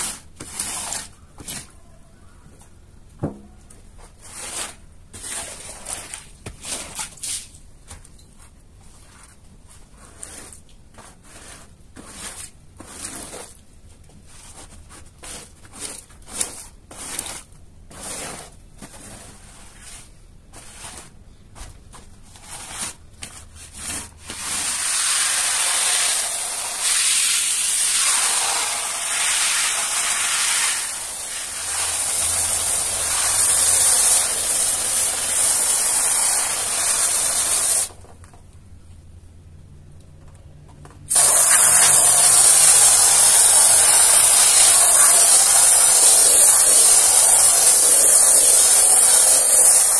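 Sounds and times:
high-pressure water spray hissing: 24.7s - 37.9s, 41.1s - 49.9s.

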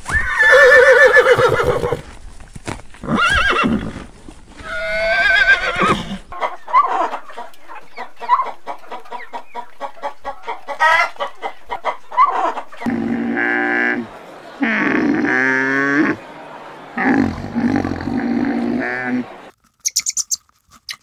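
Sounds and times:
horse whinnying: 0.1s - 2.0s, 3.0s - 4.0s, 4.6s - 6.3s
rooster clucking: 5.5s - 20.3s.

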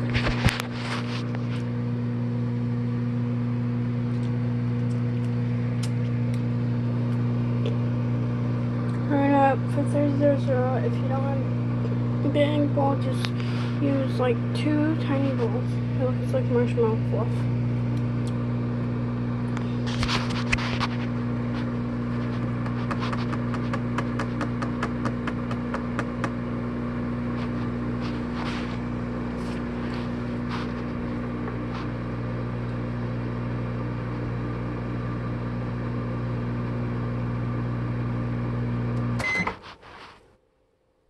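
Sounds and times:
microwave oven humming: 0.0s - 40.1s
microwave beep: 39.0s - 39.6s.

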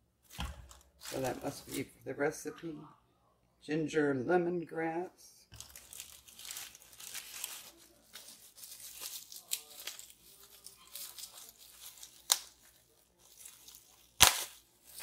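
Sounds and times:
bubble wrap and plastic crinkling: 0.2s - 1.9s, 5.5s - 15.0s.

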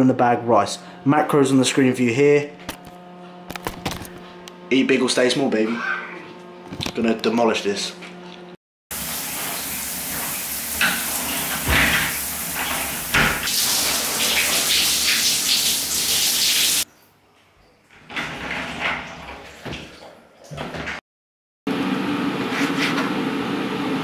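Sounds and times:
shower spray running: 8.9s - 16.9s.

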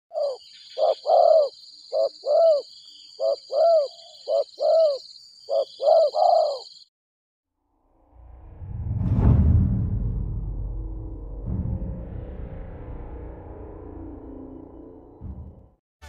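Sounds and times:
dove cooing: 0.1s - 6.8s.

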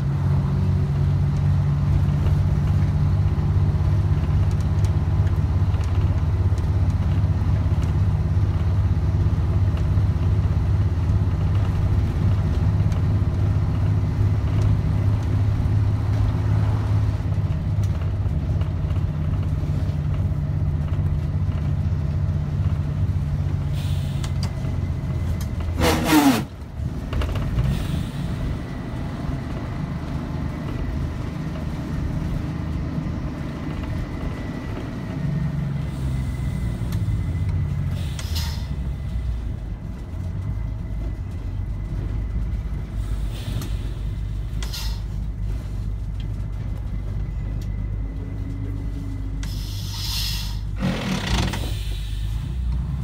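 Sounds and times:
bus diesel engine running: 0.0s - 53.0s
short hisses: 49.5s - 50.8s, 51.6s - 52.6s.

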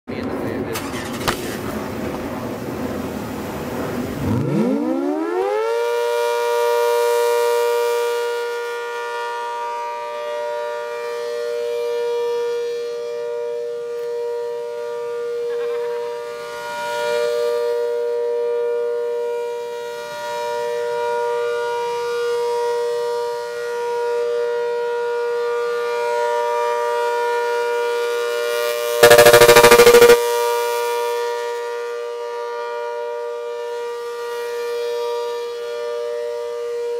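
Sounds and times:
rotating warning siren wailing: 4.3s - 15.0s, 29.0s - 30.2s.

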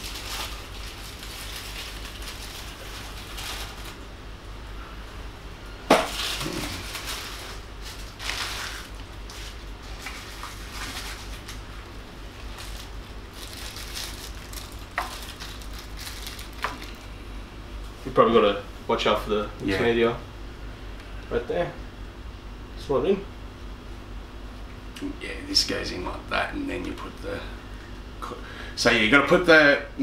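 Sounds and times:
statue parts rustling and clattering: 5.9s - 11.6s.

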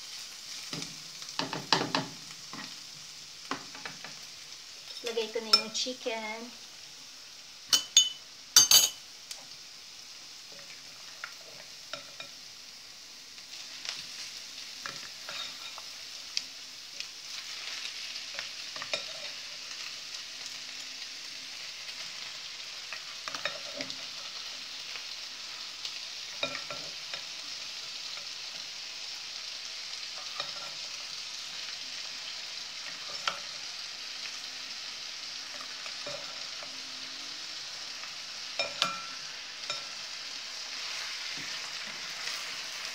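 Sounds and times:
chicken sizzling in a frying pan: 0.0s - 42.9s
spoon scraping bowl and pan: 4.8s - 5.9s, 7.7s - 9.0s, 13.6s - 15.9s, 17.3s - 19.9s, 22.1s - 25.1s, 26.2s - 29.1s, 29.9s - 32.0s, 32.8s - 33.6s, 35.4s - 36.8s, 38.4s - 40.0s.

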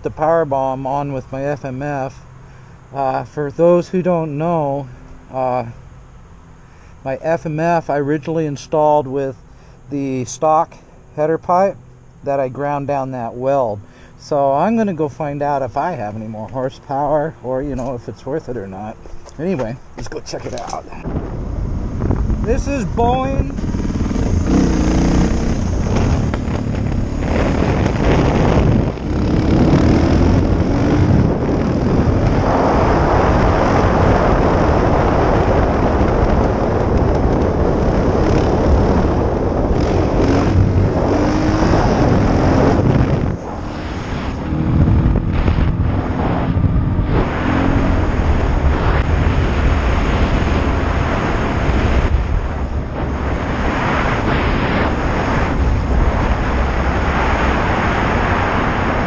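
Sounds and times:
wind noise: 11.6s - 59.0s
motorcycle engine revving: 19.0s - 59.0s.

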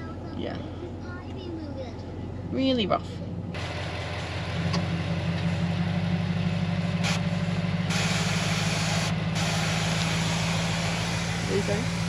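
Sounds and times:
engine and tyres droning: 0.0s - 12.0s
judder from corrugated road: 0.0s - 12.0s
road noise hiss: 3.5s - 12.0s.

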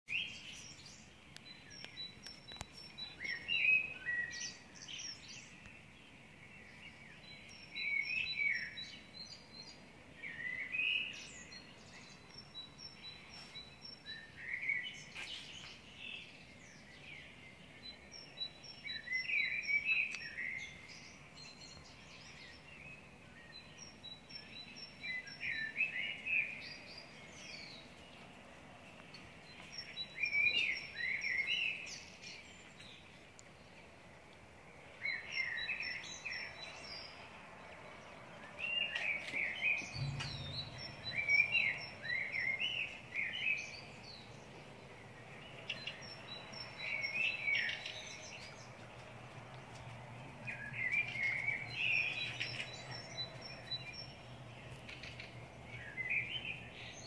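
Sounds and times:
songbirds singing: 0.1s - 57.0s.

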